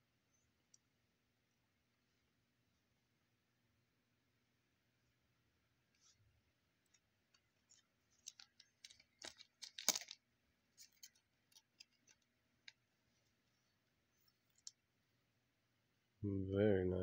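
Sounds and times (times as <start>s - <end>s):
plastic sleeve rustling: 6.9s - 13.7s.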